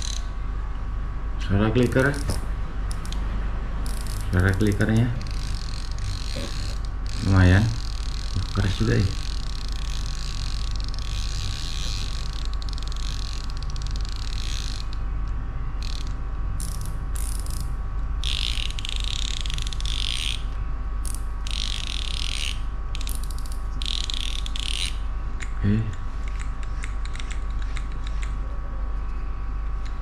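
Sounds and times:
fishing reel clicker ratcheting: 0:00.0 - 0:00.3, 0:03.8 - 0:15.0, 0:15.8 - 0:20.4, 0:21.0 - 0:25.0, 0:26.3 - 0:28.2
low electrical hum: 0:00.0 - 0:30.0.

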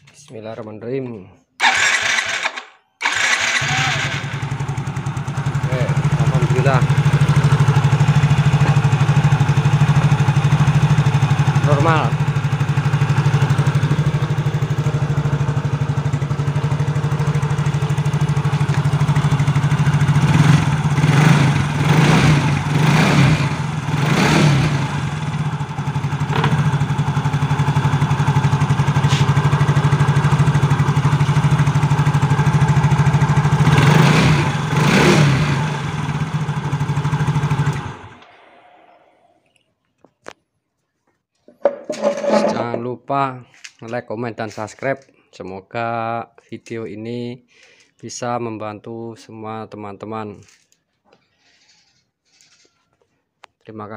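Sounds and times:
scooter throttle blips: 0:01.6 - 0:39.1
scooter engine idling: 0:01.6 - 0:39.3.

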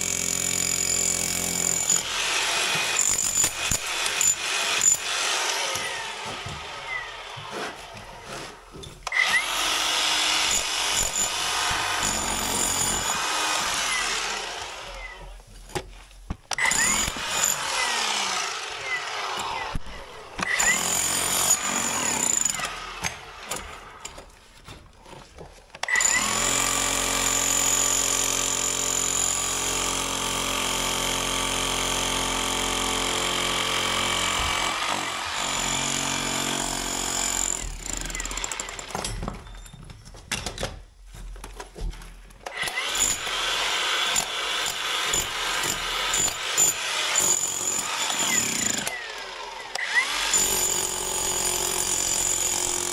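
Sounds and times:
electric breaker chiselling brick: 0:00.0 - 0:07.3, 0:09.0 - 0:15.3, 0:16.5 - 0:24.2, 0:25.8 - 0:39.2, 0:42.4 - 0:52.9
angle grinder on brick: 0:16.5 - 0:23.9, 0:42.5 - 0:52.9.

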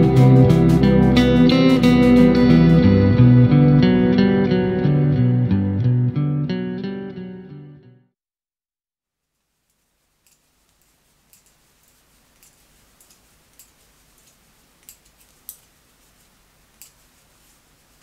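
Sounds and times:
soft room hiss: 0:09.0 - 0:18.0
knitting needles clicking: 0:09.7 - 0:15.8, 0:16.7 - 0:17.1.

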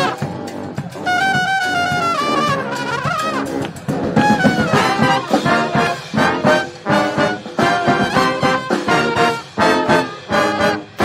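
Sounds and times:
brass band playing: 0:00.0 - 0:11.0.

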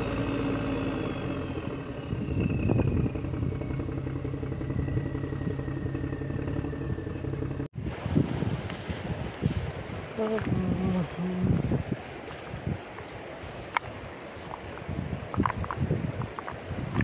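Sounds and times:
engine whine falling in pitch: 0:00.0 - 0:07.7
engine low hum: 0:00.0 - 0:17.0.

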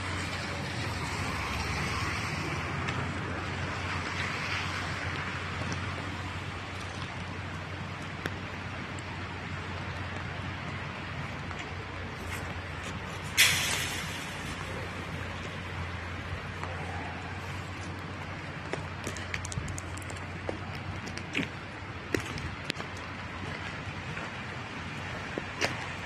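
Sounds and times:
road traffic hum: 0:00.0 - 0:26.0
sudden loud hiss: 0:13.3 - 0:14.8.

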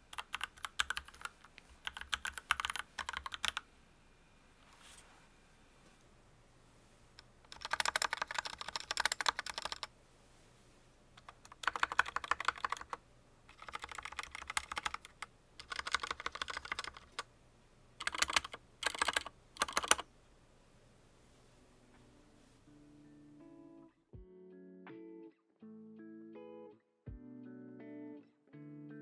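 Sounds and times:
mechanical keyboard typing: 0:00.1 - 0:03.6, 0:07.5 - 0:09.9, 0:11.2 - 0:17.3, 0:18.0 - 0:20.1.

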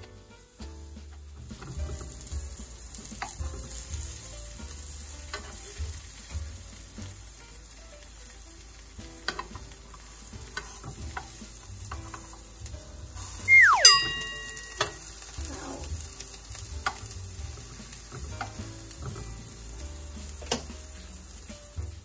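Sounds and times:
slices sizzling in oil: 0:00.0 - 0:22.0
metal tongs clicking on pan: 0:05.3 - 0:05.7, 0:09.2 - 0:09.7, 0:20.4 - 0:20.8.

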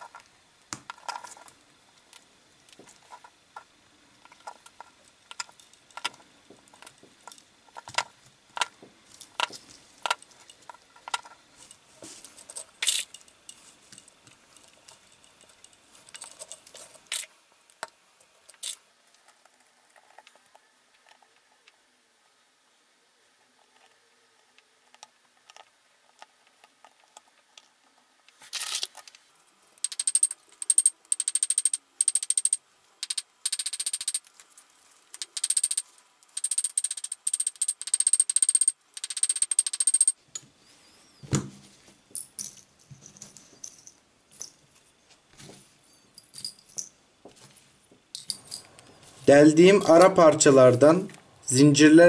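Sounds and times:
metal parts clicking: 0:02.9 - 0:11.8, 0:12.4 - 0:18.8, 0:28.3 - 0:29.2, 0:29.8 - 0:40.2, 0:48.1 - 0:48.9.

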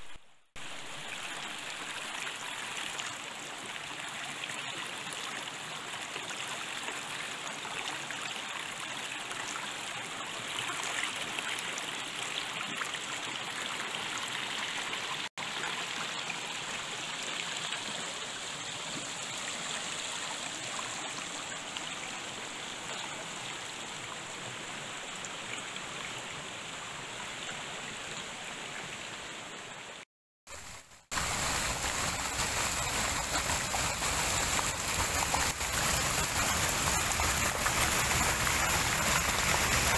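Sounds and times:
brook rippling over rocks: 0:30.5 - 0:39.9.

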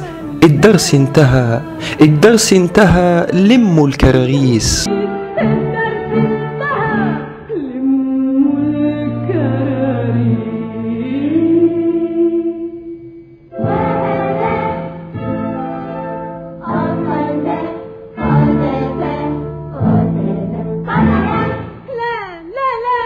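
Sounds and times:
choir-like singing: 0:04.9 - 0:12.7, 0:13.6 - 0:15.6, 0:16.6 - 0:23.0.

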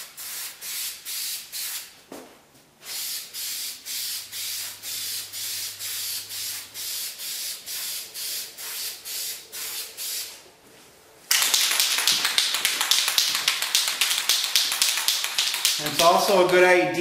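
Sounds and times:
aerosol spray can hissing: 0:02.9 - 0:10.4, 0:11.3 - 0:16.1
rapid clicking: 0:11.3 - 0:16.1.

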